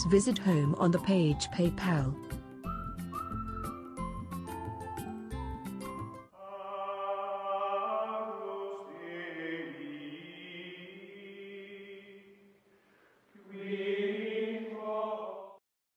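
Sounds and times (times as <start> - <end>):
chant-like singing: 6.4 - 12.5, 13.4 - 15.6.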